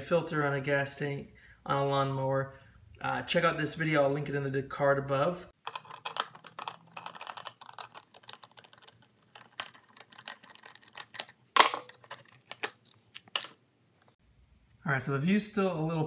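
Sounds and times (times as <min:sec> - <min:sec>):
plastic cover clacking open: 0:05.6 - 0:13.6.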